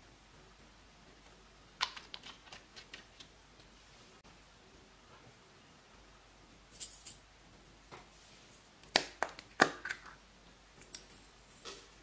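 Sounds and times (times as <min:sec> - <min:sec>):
plastic cups clicking and snapping: 0:01.8 - 0:03.7, 0:08.8 - 0:10.2.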